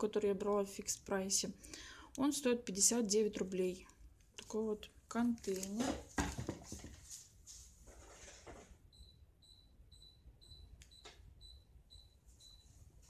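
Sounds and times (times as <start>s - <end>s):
timer alarm beeping: 8.9s - 12.8s.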